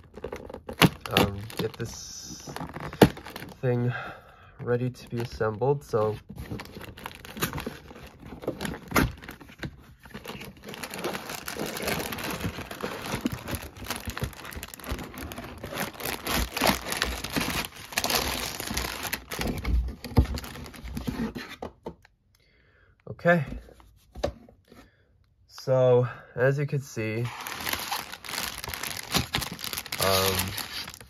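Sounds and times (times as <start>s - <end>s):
cardboard box tearing: 0.0s - 3.6s, 6.3s - 21.5s, 27.3s - 31.0s
plastic bags crinkling: 0.0s - 3.9s, 4.6s - 21.1s, 27.3s - 31.0s.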